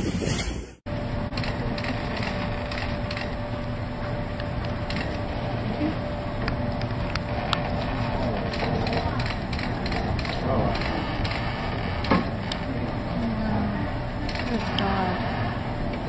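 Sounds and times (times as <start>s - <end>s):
steady low rumble: 0.0s - 16.0s
ship fittings creaking and clicking: 6.4s - 13.3s.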